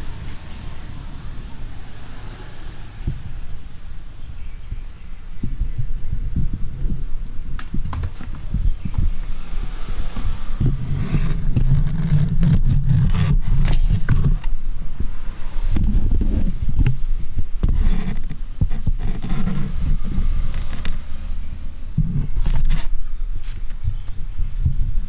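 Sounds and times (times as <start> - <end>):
low thumps and rumble: 4.6 - 9.4, 10.0 - 21.1, 21.8 - 23.0, 23.8 - 25.0
cardboard scraping and rustling: 7.5 - 14.6, 15.4 - 21.2, 22.0 - 23.8.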